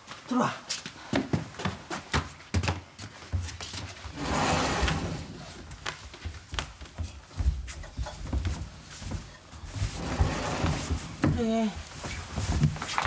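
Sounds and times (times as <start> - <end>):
footsteps on wooden floor: 0.0 - 13.0
scraping rush: 4.1 - 5.6.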